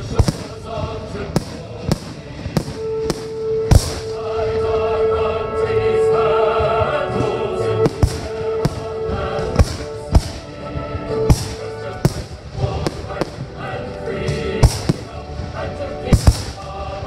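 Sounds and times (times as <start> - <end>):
firework booms: 0.0 - 4.3, 7.8 - 10.6, 11.2 - 13.7, 14.3 - 16.8
music with singing: 0.0 - 17.0.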